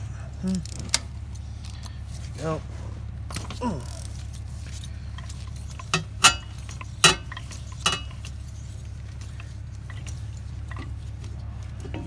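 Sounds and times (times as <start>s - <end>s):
steady low hum: 0.0s - 12.0s
ratchet clinking on metal: 3.3s - 12.0s.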